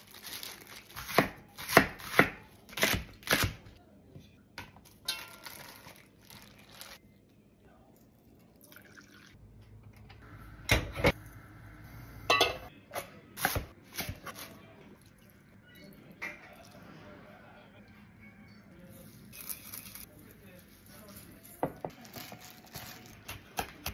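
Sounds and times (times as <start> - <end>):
pots and utensils knocking: 12.3 - 12.7
sliced onions rustling into a pot: 19.0 - 23.3.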